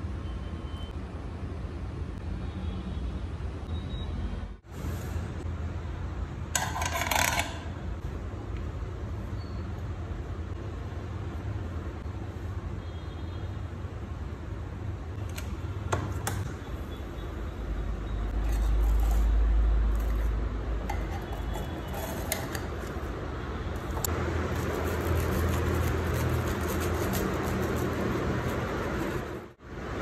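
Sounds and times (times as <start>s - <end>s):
knife sawing through sandwich: 24.6s - 29.2s.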